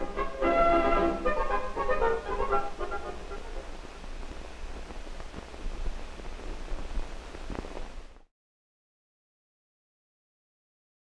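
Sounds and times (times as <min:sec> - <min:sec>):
closing music: 0:00.0 - 0:04.9
film soundtrack hiss and hum: 0:00.0 - 0:08.3
faint crackles: 0:01.7 - 0:08.3.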